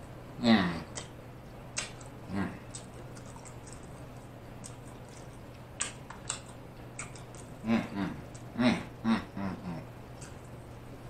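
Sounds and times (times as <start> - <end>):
soft chewing: 0.0 - 11.0
steady low hum: 0.0 - 11.0
lip smacks: 0.9 - 8.5, 10.1 - 10.8.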